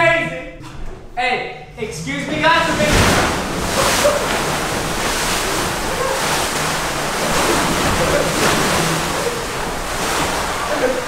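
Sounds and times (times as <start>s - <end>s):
water sloshing and splashing: 2.1s - 11.0s.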